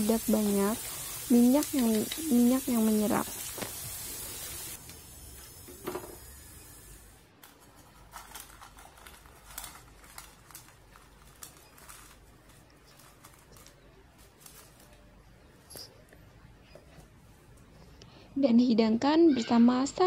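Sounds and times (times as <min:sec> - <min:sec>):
oil sizzling in a frying pan: 0:00.0 - 0:07.2.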